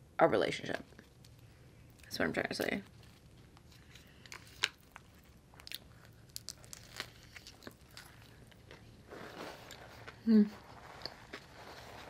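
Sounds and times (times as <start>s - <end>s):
sandwich chewing crunches: 2.9s - 12.0s.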